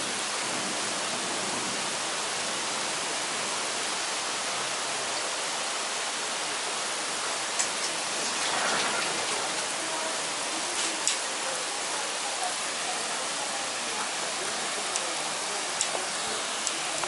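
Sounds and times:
heavy rain pouring: 0.0s - 17.0s
sharp ticks of raindrops: 7.5s - 9.8s, 10.6s - 11.3s, 14.8s - 17.0s.

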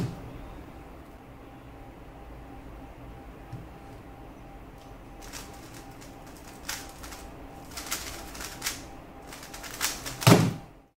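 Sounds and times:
speedcube turns clacking: 5.2s - 10.6s.

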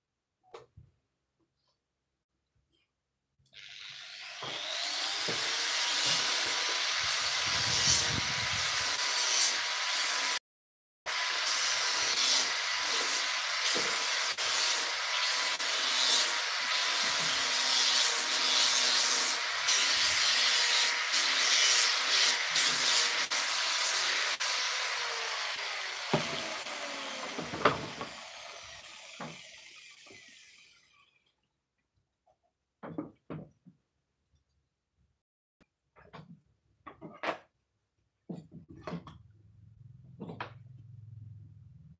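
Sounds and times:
electric sander on wood: 3.6s - 10.4s, 11.1s - 30.8s.

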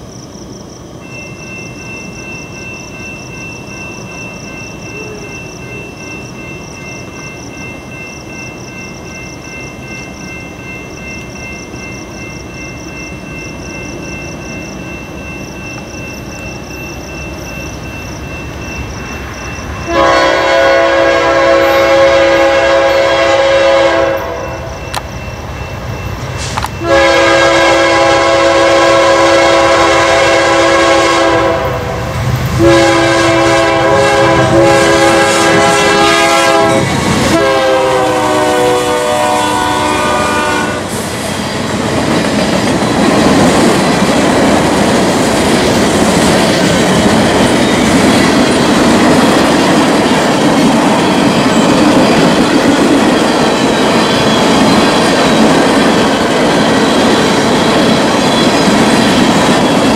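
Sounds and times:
train cars rumbling past: 0.0s - 59.9s
locomotive air horn: 19.9s - 24.7s, 26.8s - 41.0s.

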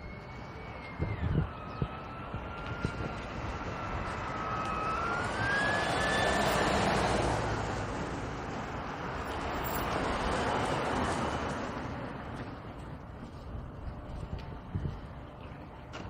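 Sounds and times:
siren wail: 0.0s - 12.0s
car engine and tyres passing: 0.2s - 14.3s.

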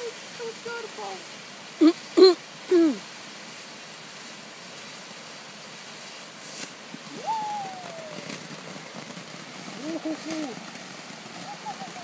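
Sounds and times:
firework hissing: 0.0s - 12.0s
short crackle: 6.4s - 12.0s.

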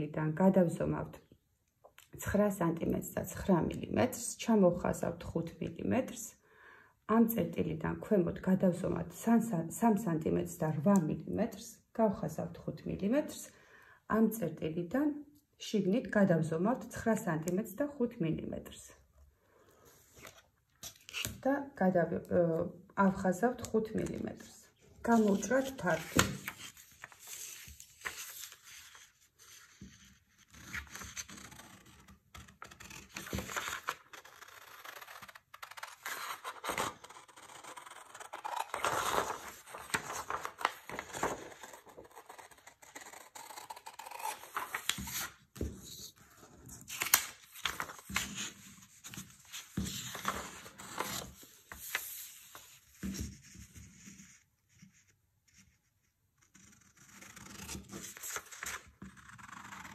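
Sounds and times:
paper rustling and crinkling: 25.2s - 30.0s, 38.3s - 53.3s
scissors snipping paper: 32.6s - 45.1s.

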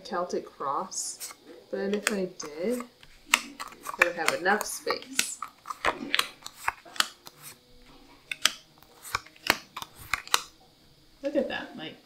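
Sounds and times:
cards clicking and tapping: 1.0s - 10.6s.

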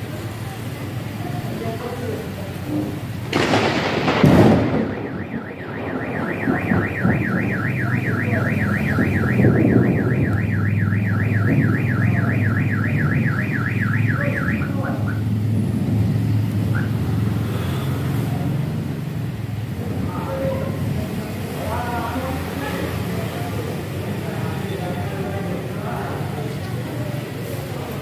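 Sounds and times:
thunder clap: 3.3s - 15.3s
car alarm siren warbling: 4.4s - 15.3s, 16.7s - 17.1s.

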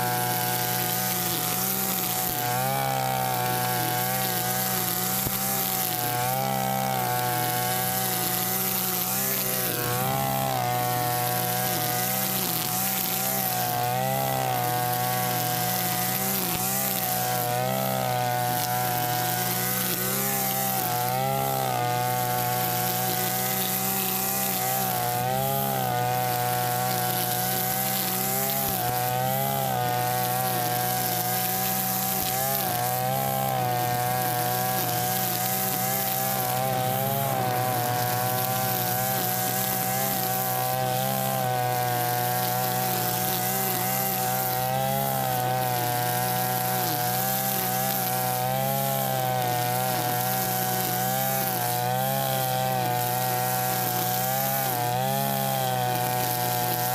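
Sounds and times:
brush cutter running: 0.0s - 56.9s.

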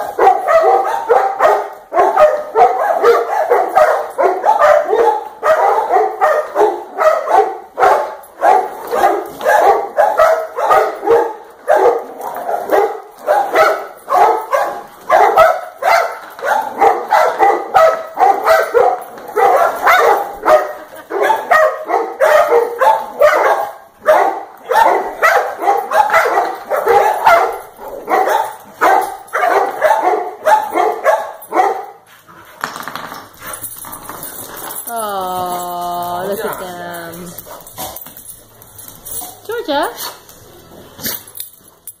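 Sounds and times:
dogs barking and yipping: 0.0s - 42.0s.

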